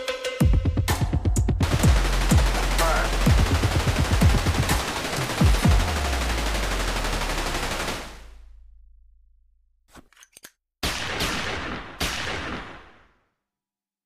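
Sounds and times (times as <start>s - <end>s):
automatic gunfire with deep booms: 1.6s - 8.4s, 10.8s - 13.2s.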